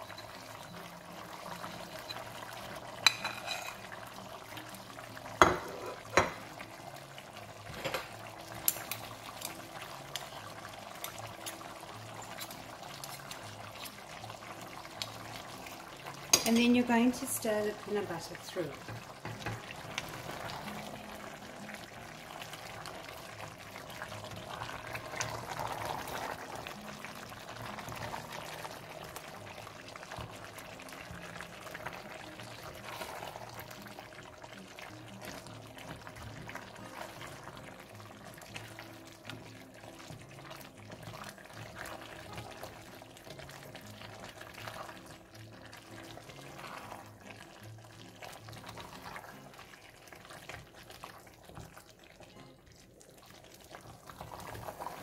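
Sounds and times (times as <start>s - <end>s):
spoon scraping metal pot: 3.0s - 4.0s, 5.4s - 6.4s.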